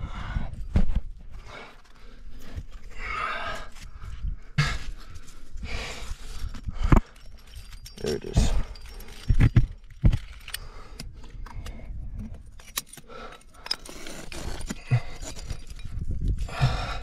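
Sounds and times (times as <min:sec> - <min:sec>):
metal climbing gear jangling: 0:04.8 - 0:17.0.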